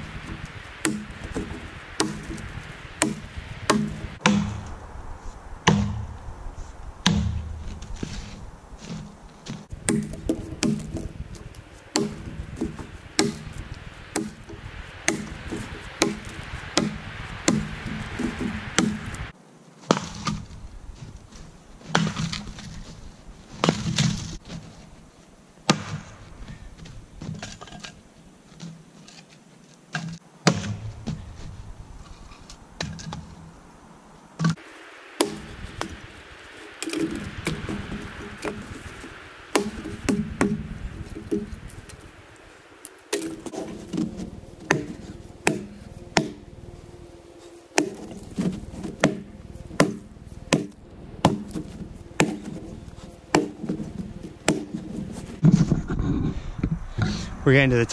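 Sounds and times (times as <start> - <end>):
axe chopping wood: 0.0 - 4.6, 5.7 - 6.0, 9.7 - 19.3, 25.7 - 26.1, 29.9 - 30.9, 35.2 - 42.0, 43.1 - 46.6, 47.7 - 55.4.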